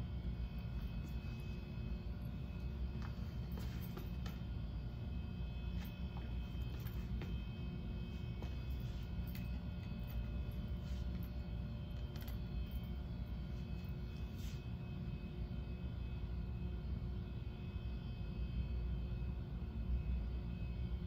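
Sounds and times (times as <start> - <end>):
air handling rumble and hum: 0.0 - 15.6
faint whining tones: 0.0 - 21.0.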